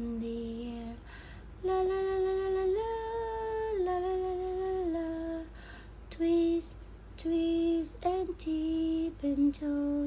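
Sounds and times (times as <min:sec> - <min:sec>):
woman singing wordless notes: 0:00.0 - 0:10.0
woman taking a breath: 0:01.0 - 0:01.6, 0:05.5 - 0:06.0.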